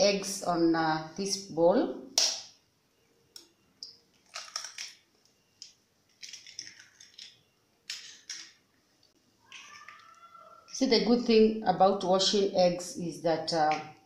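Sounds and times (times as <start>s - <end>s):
eggshell crunching: 4.2s - 5.0s, 5.6s - 8.6s.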